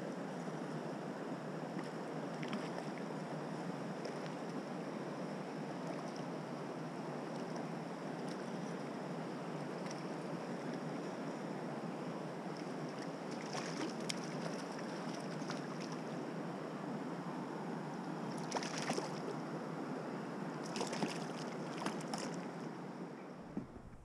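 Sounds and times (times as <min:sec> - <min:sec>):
stream water rushing: 0:09.0 - 0:23.0
fish splashing in water: 0:13.0 - 0:16.0, 0:18.3 - 0:19.3, 0:20.6 - 0:22.4.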